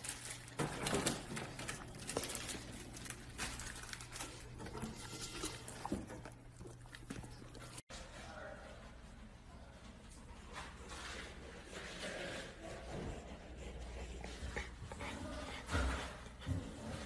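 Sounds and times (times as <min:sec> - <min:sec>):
dog chewing wetly: 0:01.8 - 0:07.8.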